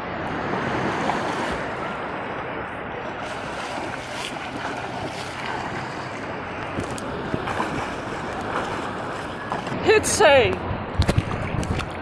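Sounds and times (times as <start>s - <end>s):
sea water sloshing: 0.2s - 10.2s
small splashes: 3.2s - 9.8s.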